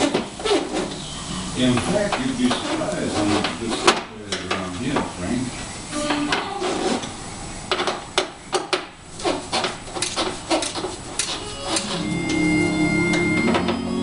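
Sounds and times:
background music with held tones: 0:11.4 - 0:14.0.

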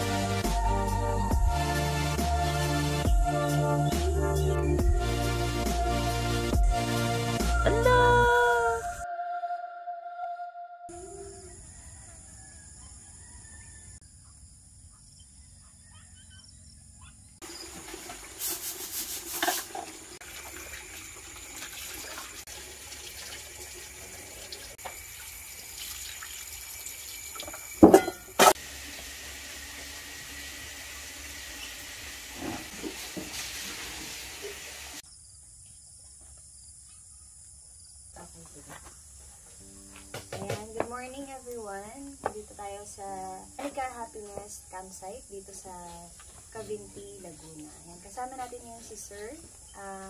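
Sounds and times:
water running from tap: 0:17.4 - 0:35.0
dishes clattering: 0:27.5 - 0:28.6
sharp knocks: 0:40.0 - 0:40.9.

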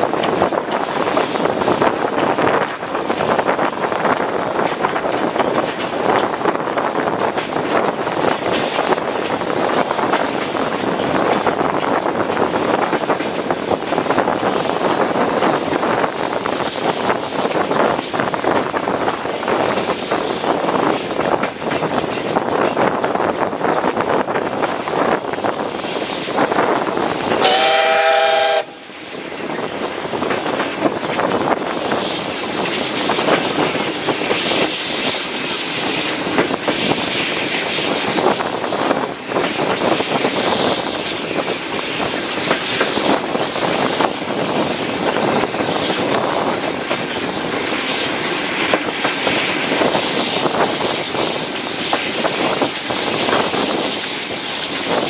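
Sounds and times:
train rattling on rails: 0:00.0 - 0:55.0
steam locomotive whistle: 0:27.4 - 0:28.9.

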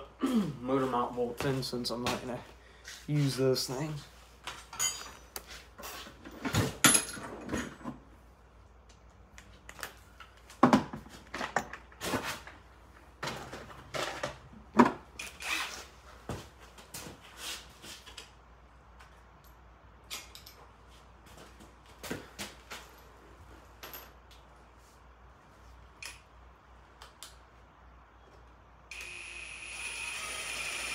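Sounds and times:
metal tools clanking: 0:04.6 - 0:05.4.

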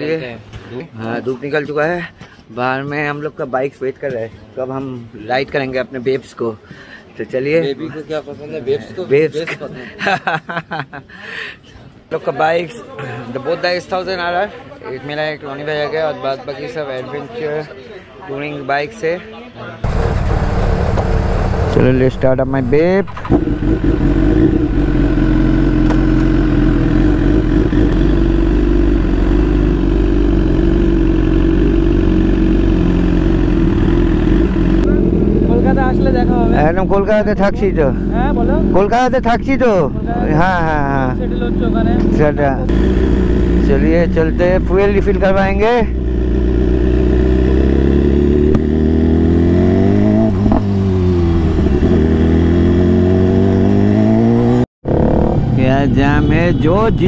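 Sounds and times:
motorcycle engine running: 0:19.8 - 0:56.5
motorcycle engine idling: 0:19.9 - 0:22.0, 0:41.1 - 0:48.0.

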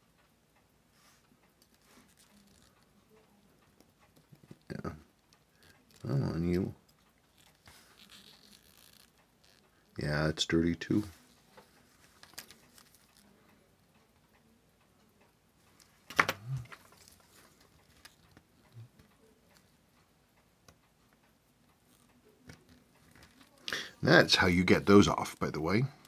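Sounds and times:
tweezers clicking on watch parts: 0:01.4 - 0:06.1, 0:06.8 - 0:09.8.

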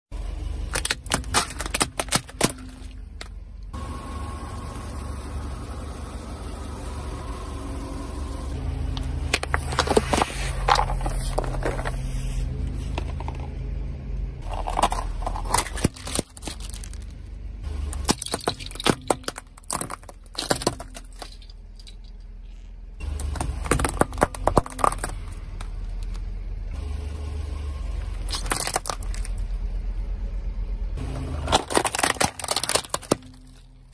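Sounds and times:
car engine humming: 0:00.1 - 0:33.9
tyres crushing crunchy objects: 0:00.6 - 0:03.4, 0:08.9 - 0:12.2, 0:14.4 - 0:26.2, 0:28.1 - 0:29.4, 0:31.0 - 0:33.9.

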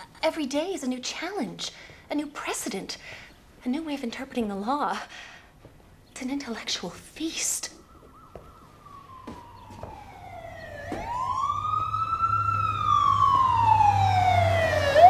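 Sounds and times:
ambulance siren wailing: 0:07.8 - 0:15.0.

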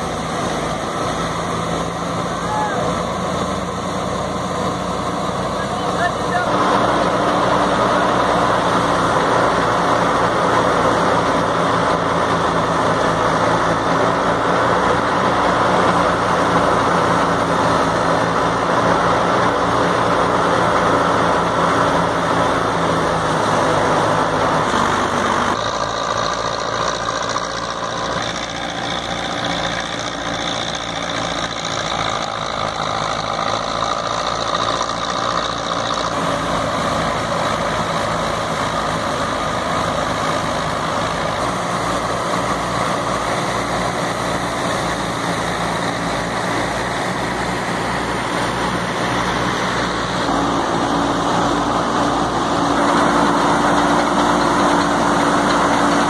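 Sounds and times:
tractor diesel engine running: 0:00.0 - 0:56.0
thresher drum whirring: 0:36.3 - 0:56.0.

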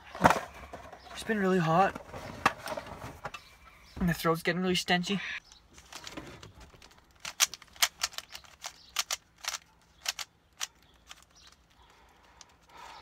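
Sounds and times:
puzzle cube twisting clicks: 0:06.8 - 0:12.7.

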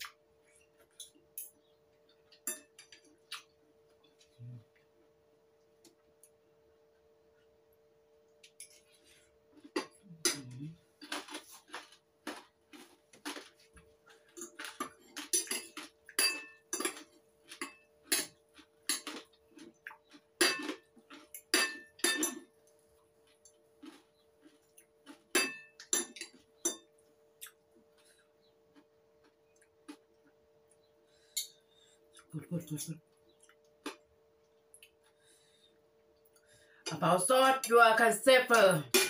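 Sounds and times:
faint steady hum: 0:00.0 - 0:39.0
cutlery clinking on ceramic plate: 0:14.4 - 0:19.2, 0:21.4 - 0:22.5, 0:25.3 - 0:26.9.

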